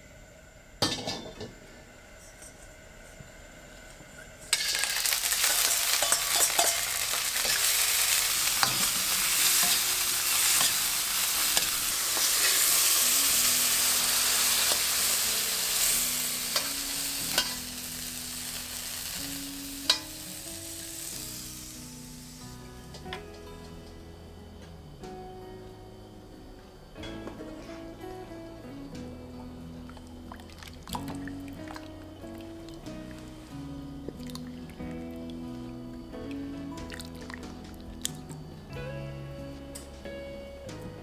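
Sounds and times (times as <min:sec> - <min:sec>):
utensil scraping a wok: 0:04.5 - 0:20.5
vegetables sizzling in hot oil: 0:04.5 - 0:23.4.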